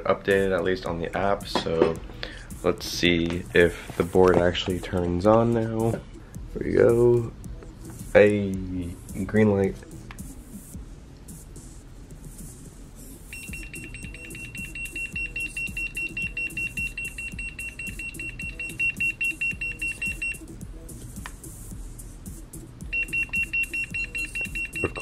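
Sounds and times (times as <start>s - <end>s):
fast high-pitched electronic beeping: 13.3s - 20.5s, 22.9s - 25.0s.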